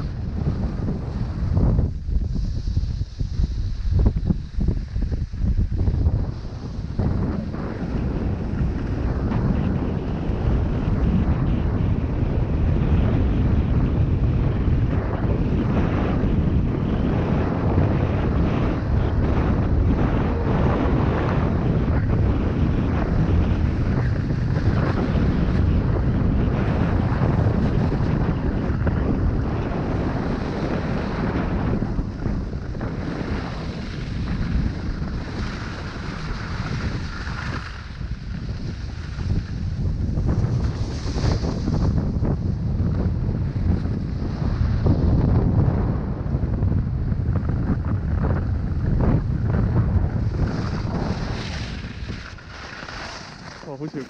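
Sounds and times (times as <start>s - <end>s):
wind rushing over microphone: 0.0s - 54.0s
skis hissing over snow: 1.1s - 8.9s, 33.0s - 41.9s, 50.2s - 54.0s.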